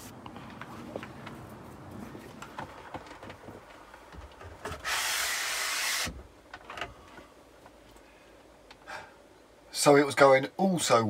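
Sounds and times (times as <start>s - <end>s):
loud steady hiss: 4.6s - 6.3s.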